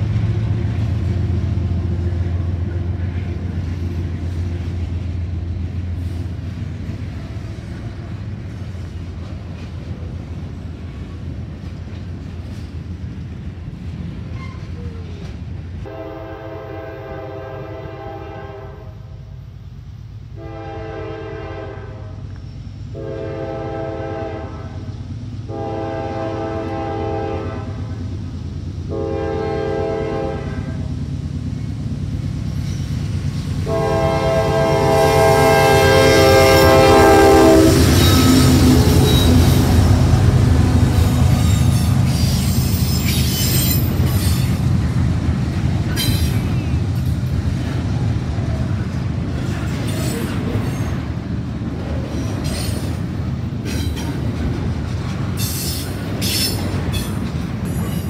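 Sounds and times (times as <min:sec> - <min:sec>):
locomotive engine: 0:00.0 - 0:18.4, 0:19.2 - 0:58.0
rail cars rumbling past: 0:00.0 - 0:58.0
locomotive air horn blasts: 0:15.8 - 0:19.1, 0:20.4 - 0:22.2, 0:22.9 - 0:24.8, 0:25.5 - 0:28.0, 0:28.9 - 0:30.9, 0:33.6 - 0:39.6.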